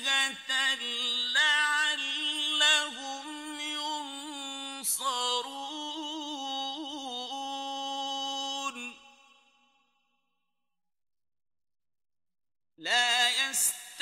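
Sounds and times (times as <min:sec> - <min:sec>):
man reciting melodically: 0:00.0 - 0:09.2, 0:12.8 - 0:14.0.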